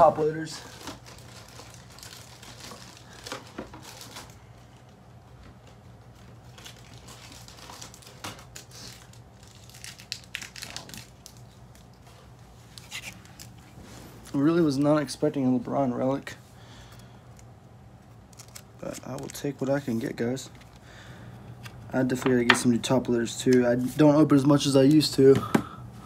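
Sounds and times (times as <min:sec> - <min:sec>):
packaging crinkling: 0:00.0 - 0:04.9, 0:05.6 - 0:14.4, 0:16.8 - 0:22.2.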